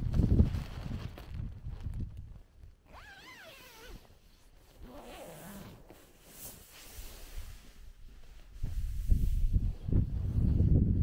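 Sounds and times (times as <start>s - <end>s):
nylon flysheet rustling: 0.0s - 10.3s
tent door zipper closing: 2.9s - 7.1s.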